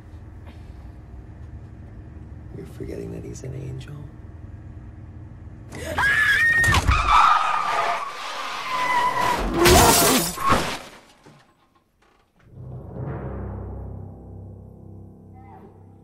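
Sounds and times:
woman screaming: 5.8 - 7.3
car tyres skidding: 5.9 - 11.0
window glass shattering: 9.2 - 11.5
metal crashing: 9.2 - 13.2.

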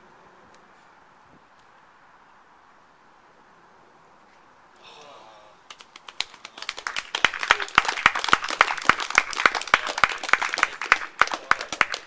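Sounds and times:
small group clapping: 5.6 - 12.0.

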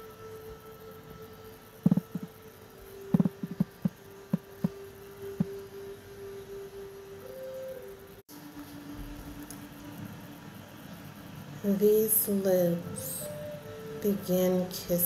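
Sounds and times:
humming drone of relaxation music: 0.0 - 15.0.

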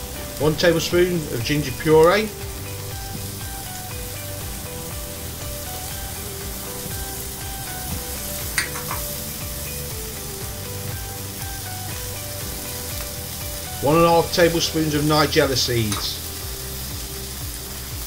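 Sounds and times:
oil sizzling in skillet: 0.0 - 18.0
quiet background music: 0.0 - 18.0.

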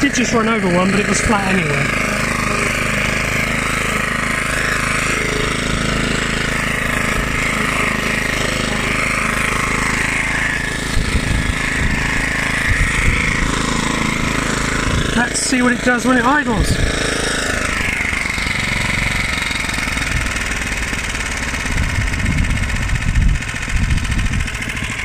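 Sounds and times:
lawnmower engine running: 0.0 - 25.0
mower blade cutting grass: 0.0 - 25.0.

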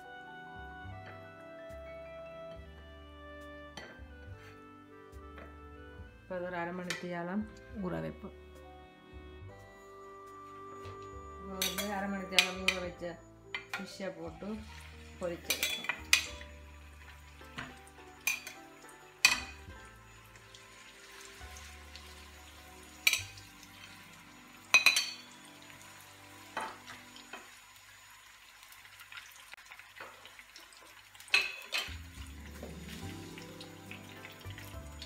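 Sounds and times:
fish frying in oil: 11.5 - 35.0
metal spoon clinking on pan: 11.6 - 14.0, 15.4 - 16.5, 18.2 - 18.6, 19.2 - 19.7, 23.0 - 23.5, 24.7 - 25.3, 31.3 - 32.0.

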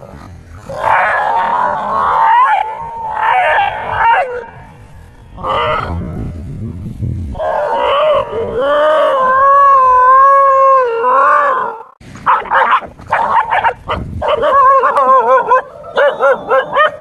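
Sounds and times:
dog howling: 0.7 - 5.9, 7.4 - 12.0, 12.6 - 17.0
dog barking and yelping: 12.2 - 17.0.

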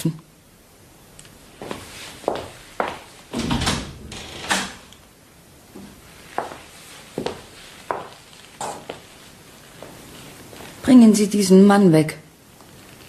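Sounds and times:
door knocks and wooden bumps: 3.3 - 4.7.

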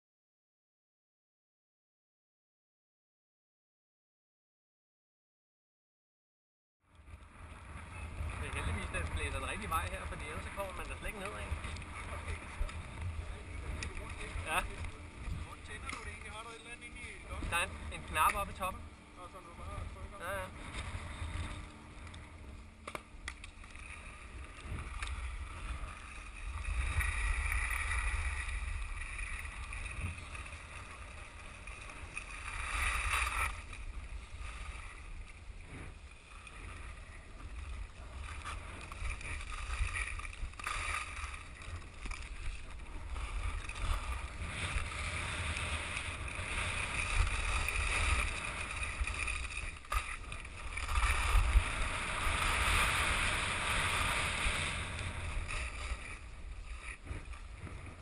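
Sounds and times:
wind buffeting microphone: 7.2 - 19.0, 23.9 - 58.0
skis scraping over snow: 7.4 - 21.7, 23.5 - 58.0.

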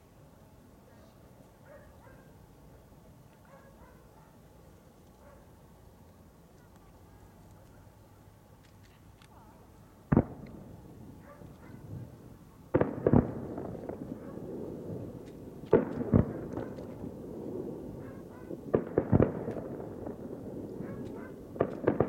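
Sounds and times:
firework shells bursting: 18.7 - 22.0.

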